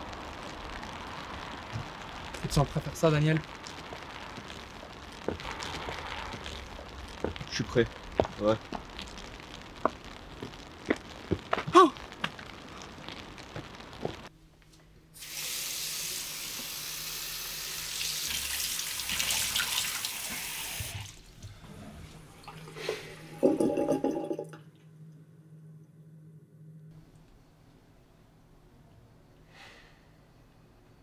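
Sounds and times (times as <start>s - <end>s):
tap water running into sink: 17.9s - 21.1s
faint low hum: 24.0s - 31.0s.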